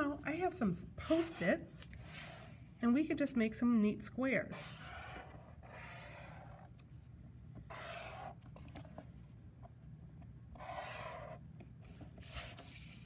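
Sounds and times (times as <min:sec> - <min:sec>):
marker pen drawing on paper: 0:01.0 - 0:02.5, 0:04.5 - 0:06.8, 0:07.6 - 0:08.6, 0:10.5 - 0:13.0.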